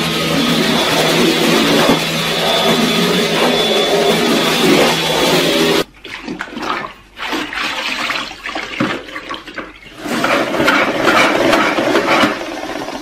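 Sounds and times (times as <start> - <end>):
mop spinning in wringer: 0.0 - 5.8, 9.9 - 13.0
vacuum cleaner running: 0.0 - 5.9, 10.0 - 13.0
water sloshing in bucket: 5.8 - 10.8.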